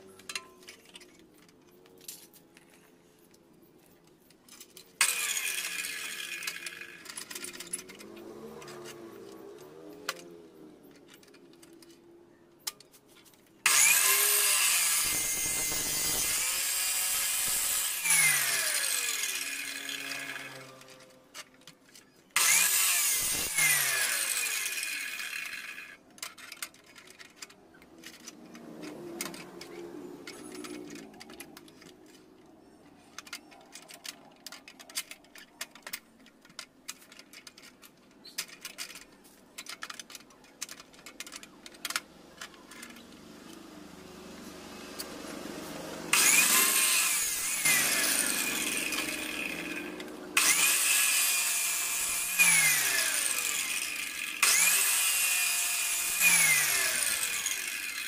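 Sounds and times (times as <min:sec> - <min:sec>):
power tool running: 0:05.0 - 0:10.3, 0:13.6 - 0:21.2, 0:22.4 - 0:26.0, 0:44.5 - 0:58.0.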